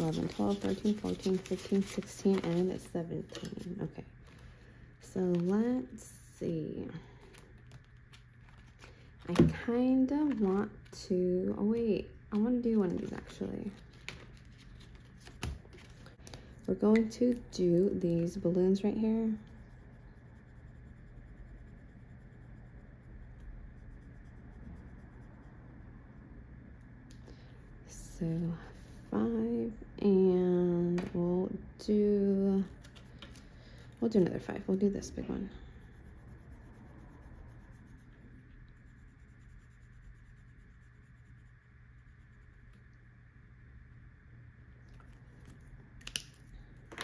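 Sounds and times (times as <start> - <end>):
marker scratching on paper: 0.0 - 3.8, 17.6 - 25.6, 34.1 - 42.8.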